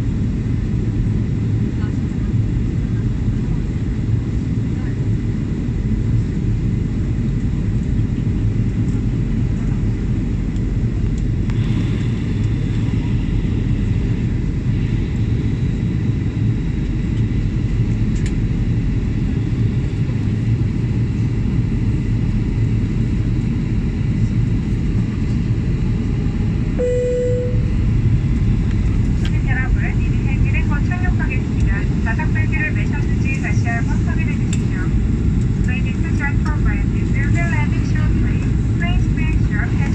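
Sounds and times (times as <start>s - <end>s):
airliner engines rumbling: 0.0s - 39.9s
short steady tone: 26.8s - 27.8s.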